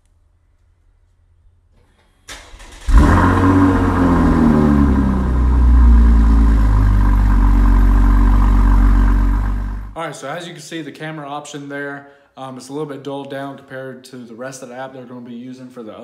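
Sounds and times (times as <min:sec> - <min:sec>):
car engine revving and idling: 0:02.6 - 0:10.0.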